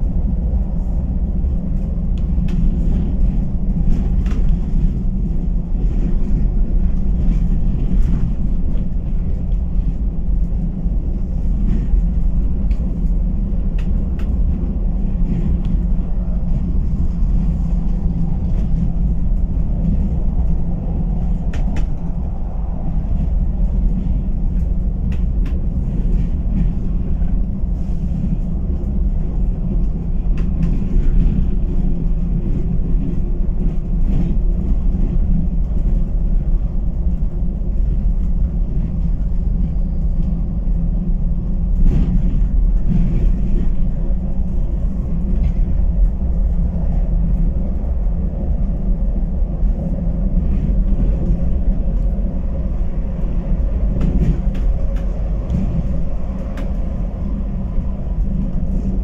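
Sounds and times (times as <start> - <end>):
bus engine and road drone: 0.0 - 59.0.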